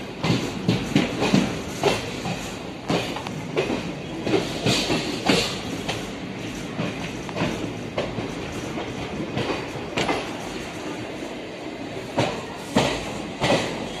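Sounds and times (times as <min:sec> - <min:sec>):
wheels clacking on rail joints: 0:00.0 - 0:11.0, 0:12.0 - 0:14.0
train rumble: 0:00.0 - 0:14.0.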